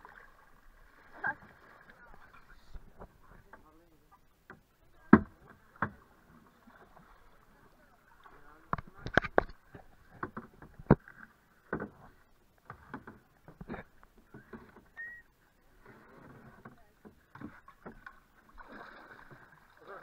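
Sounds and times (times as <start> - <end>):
water sounds: 0.0 - 20.0
paddles knocking canoe hull: 8.1 - 15.0.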